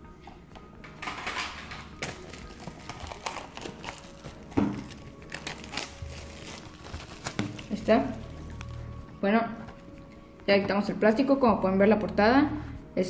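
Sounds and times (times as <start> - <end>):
cellophane crinkling: 1.6 - 10.0.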